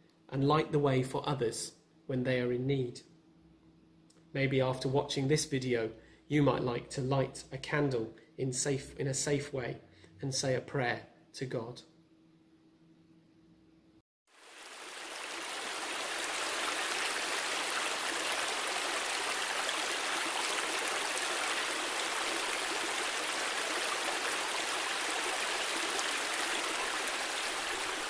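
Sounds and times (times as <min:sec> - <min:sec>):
running water rushing: 0:14.3 - 0:28.0.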